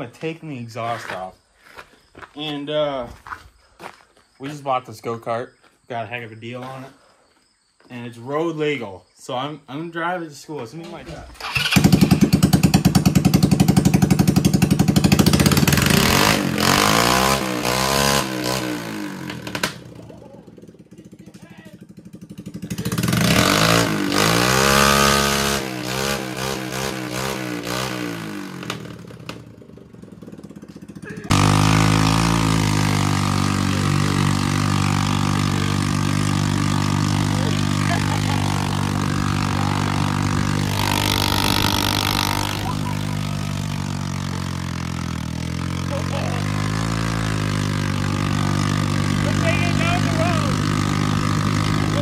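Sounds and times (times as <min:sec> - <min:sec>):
go-kart engine revving: 0:11.0 - 0:52.0.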